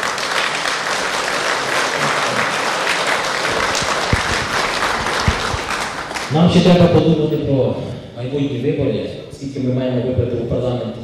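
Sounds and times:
crowd applauding: 0:00.0 - 0:07.3.

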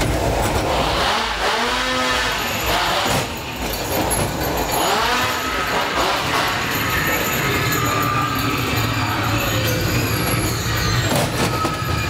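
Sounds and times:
ride car rumbling on track: 0:00.0 - 0:12.0
chainsaw revving: 0:00.6 - 0:07.4.

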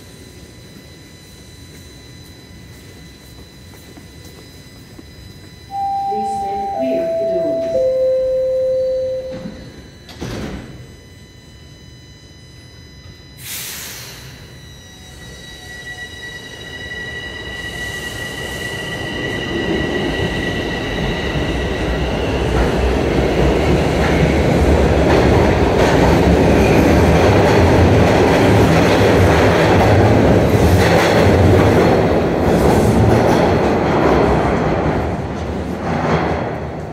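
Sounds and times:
train motor whine: 0:00.0 - 0:36.9
train wheels rumbling and clattering: 0:17.9 - 0:36.9.

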